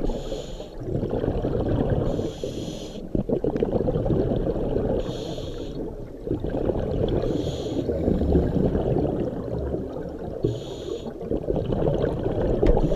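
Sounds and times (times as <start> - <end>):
regulator inhale hiss: 0.0 - 0.8, 2.1 - 3.1, 5.0 - 5.8, 7.3 - 8.0, 10.4 - 11.2
exhaled air bubbling: 0.0 - 12.9.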